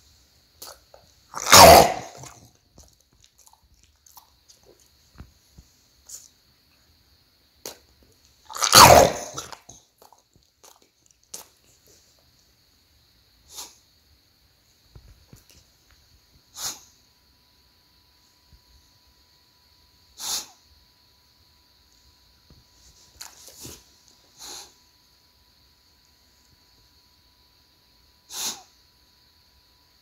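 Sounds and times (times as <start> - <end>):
dog explosive breath bursts: 16.5 - 16.9, 20.2 - 20.6, 24.4 - 24.8, 28.3 - 28.7.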